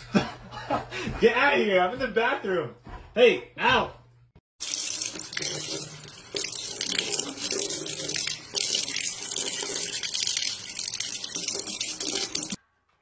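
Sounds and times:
faucet running into steel sink: 4.6s - 12.6s.

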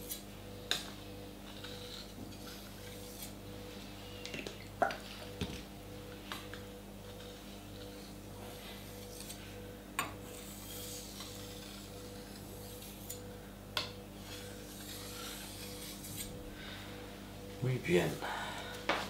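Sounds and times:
knife scraping on whetstone: 0.0s - 0.2s, 1.4s - 3.4s, 7.1s - 9.6s, 10.2s - 13.3s, 14.2s - 16.4s.

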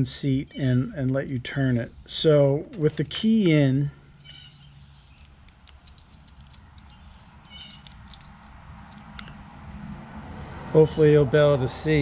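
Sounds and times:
key clicking in lock: 4.2s - 9.7s.

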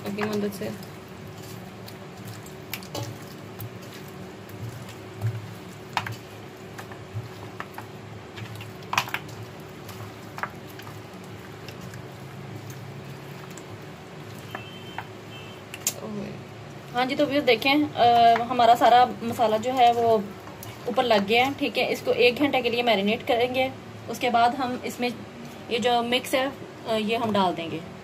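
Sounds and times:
hands squishing wet raw chicken: 0.0s - 16.0s, 18.0s - 21.6s.

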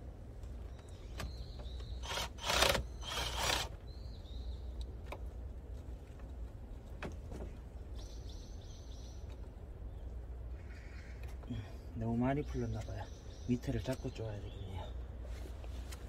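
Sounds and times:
cordless drill running: 2.0s - 3.7s.

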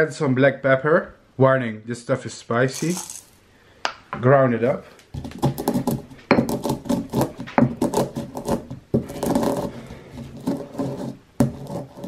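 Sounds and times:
pestle grinding in stone mortar: 2.8s - 3.3s, 5.1s - 12.0s.

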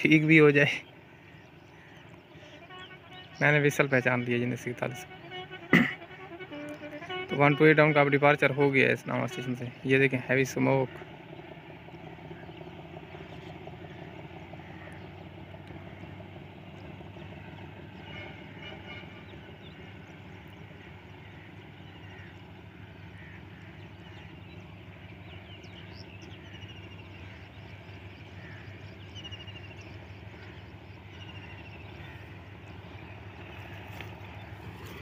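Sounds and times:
birds chirping: 0.0s - 35.0s
distant locomotive engine drone: 0.0s - 35.0s.

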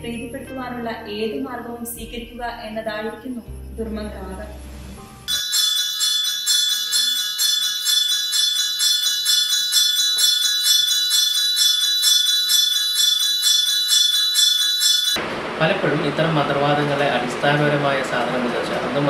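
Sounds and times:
hand bell ringing: 5.3s - 15.2s.

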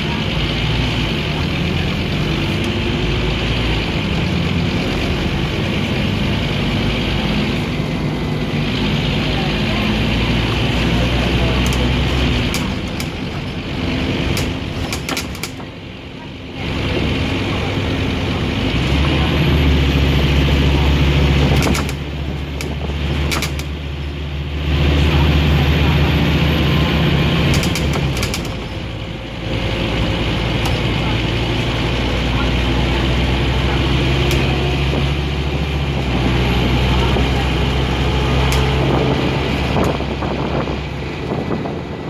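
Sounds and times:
bus diesel engine running: 0.0s - 42.0s
road and body noise: 0.0s - 42.0s
sharp rattling clicks: 11.3s - 15.7s, 21.3s - 23.8s, 27.3s - 28.9s, 38.3s - 40.0s.

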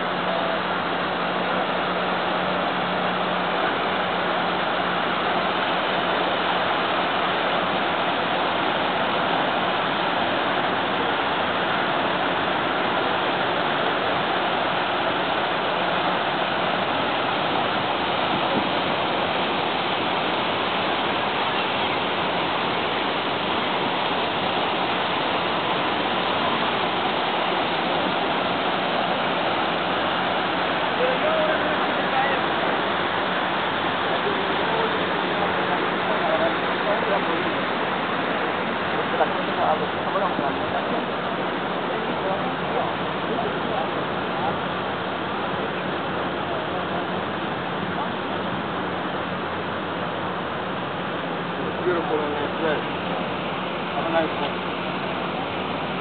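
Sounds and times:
fountain water splashing: 0.0s - 56.0s.

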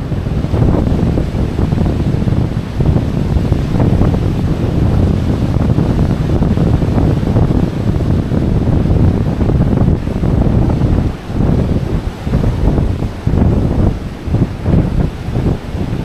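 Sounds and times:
ocean surf washing: 0.0s - 16.0s
wind buffeting microphone: 0.0s - 16.0s.

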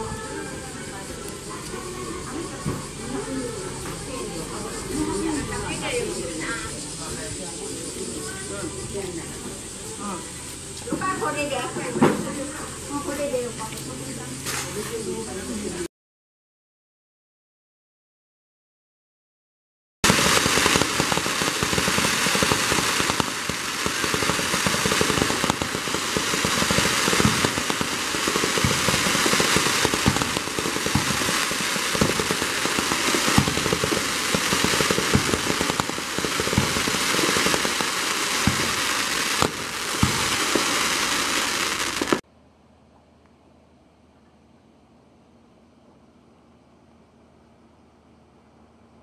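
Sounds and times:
fireworks crackling and banging: 0.0s - 7.5s, 8.2s - 14.9s, 20.0s - 42.2s
faint hiss: 20.1s - 42.2s.

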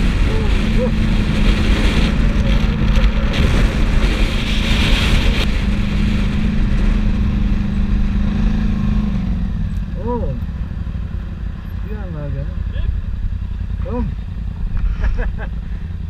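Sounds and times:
wind rumbling on microphone: 0.0s - 10.3s
quad bike engine running: 0.0s - 16.0s.

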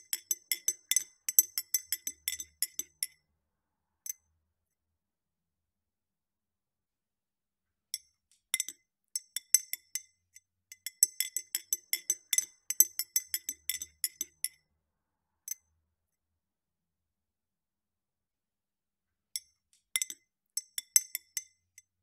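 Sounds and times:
spoon clinking against glass and ice: 0.0s - 3.1s, 10.8s - 14.6s.

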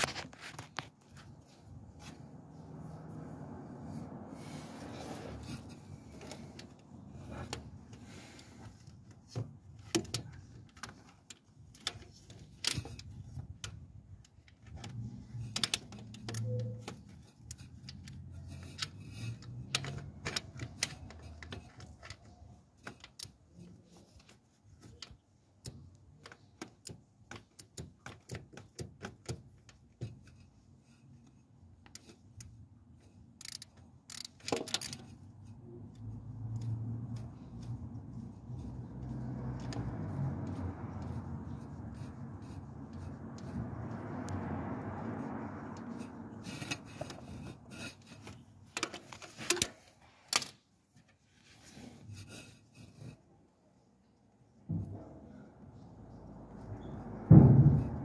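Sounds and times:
tools clicking and tapping metal: 9.3s - 30.4s, 31.8s - 35.3s.

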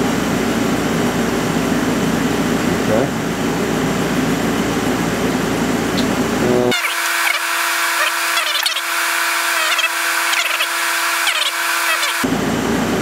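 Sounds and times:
steady hum: 0.0s - 13.0s
stepper motors whining: 6.0s - 12.3s.

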